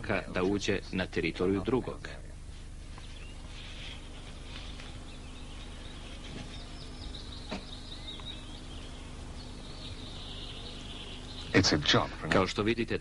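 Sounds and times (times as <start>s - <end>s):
steady low hum: 0.0s - 13.0s
birds chirping and trilling: 2.7s - 13.0s.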